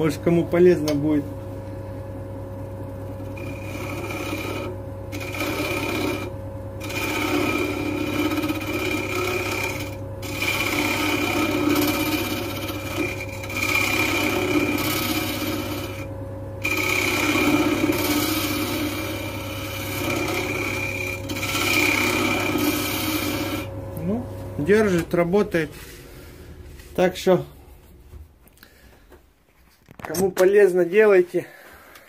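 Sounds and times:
wood lathe motor hum: 0.0s - 27.4s
tool scraping spinning wood: 2.6s - 27.7s.

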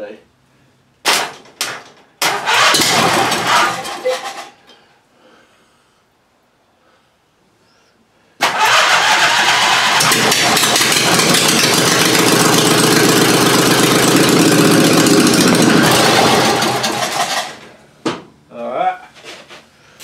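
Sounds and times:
lawn tractor engine running: 2.2s - 4.4s, 8.4s - 17.8s.

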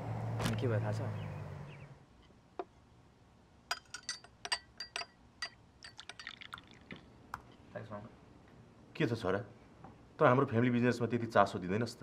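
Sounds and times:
cutlery clinking on plates: 3.7s - 6.4s.

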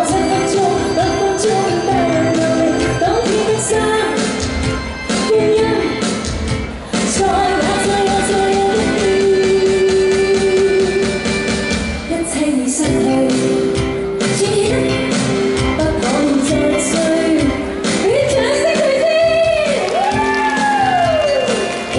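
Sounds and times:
woman singing into a microphone: 0.0s - 4.5s, 5.2s - 6.2s, 6.8s - 11.3s, 12.0s - 21.9s
pop backing music with drum beat: 0.0s - 21.9s.

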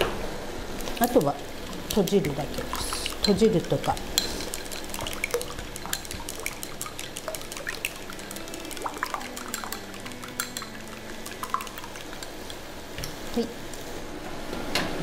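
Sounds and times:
egg sloshing: 0.8s - 13.4s
chopsticks clicking on glass bowl: 1.9s - 12.3s.

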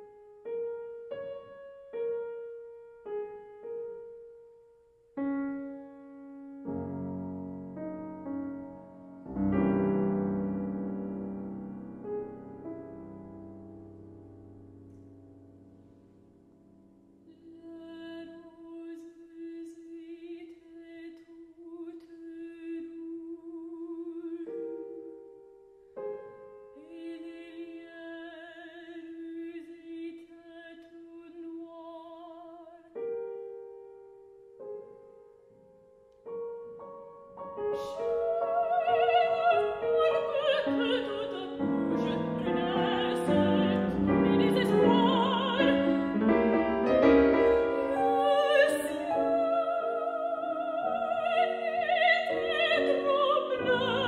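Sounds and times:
piano accompaniment: 0.0s - 17.3s, 32.9s - 54.0s
soprano singing with vibrato: 17.3s - 25.3s, 26.8s - 33.2s, 37.5s - 54.0s.

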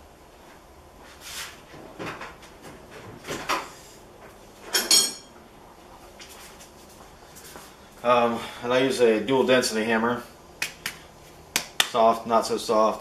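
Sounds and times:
ringing metal clink: 4.8s - 5.3s.

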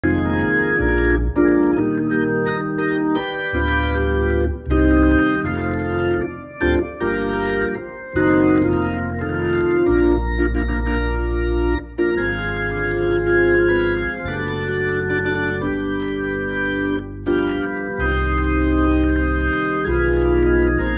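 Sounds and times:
deep bass notes: 0.0s - 20.9s
organ chords through rotary speaker: 0.0s - 20.9s.

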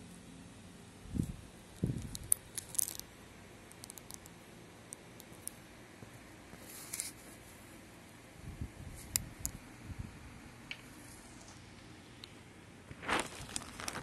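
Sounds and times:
small clicks and ticks: 1.7s - 5.6s.

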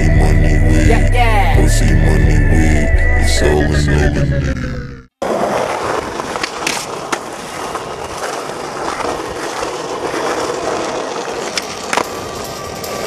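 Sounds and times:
skateboard wheels rolling on asphalt: 5.2s - 13.0s.

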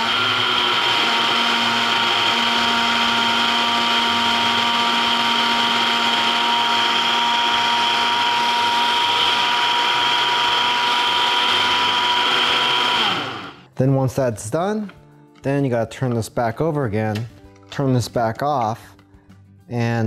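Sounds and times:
blender motor whining: 0.0s - 13.7s.

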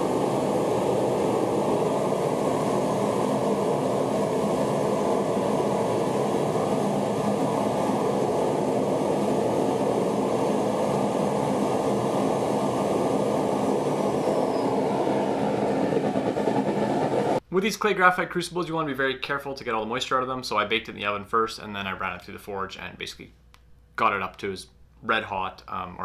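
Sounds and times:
propane burner roaring: 0.0s - 17.4s.

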